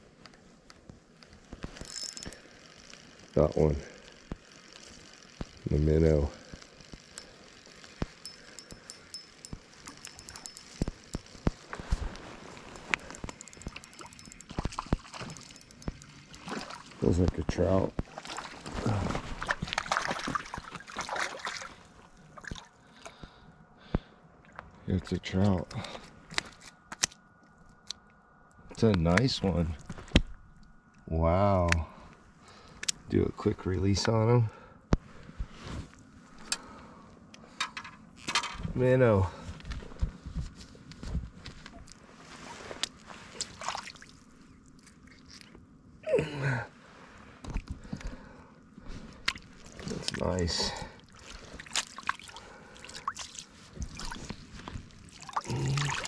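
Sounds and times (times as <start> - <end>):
wet clicks and rustles: 6.4 - 21.8, 42.7 - 45.6, 48.8 - 56.0
water splashing: 12.6 - 17.2, 18.0 - 22.7, 43.3 - 45.5, 49.2 - 54.3, 54.9 - 56.0
person grunting: 46.0 - 46.7, 55.4 - 56.0.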